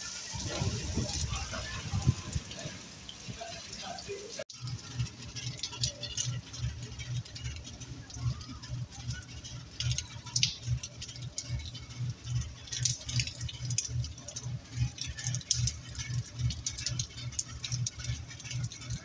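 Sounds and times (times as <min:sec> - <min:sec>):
heavy rain pattering: 0:00.0 - 0:19.0
low pulsing throb: 0:04.5 - 0:19.0.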